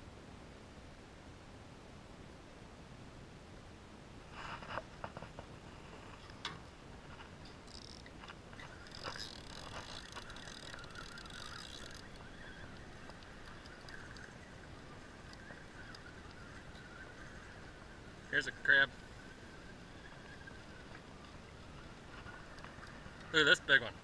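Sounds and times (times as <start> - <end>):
fishing rod knocks and clicks: 7.4 - 14.3
fishing reel gears whirring: 7.5 - 17.5.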